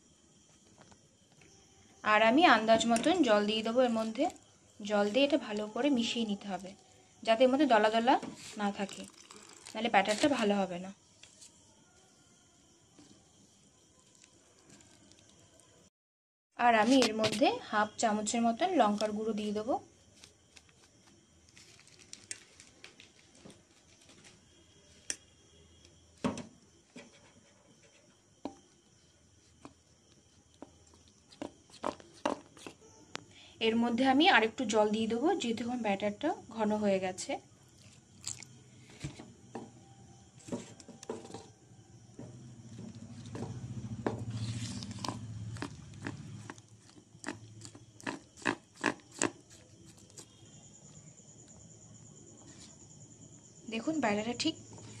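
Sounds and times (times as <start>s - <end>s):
spoon stirring thick batter: 8.2s - 10.5s.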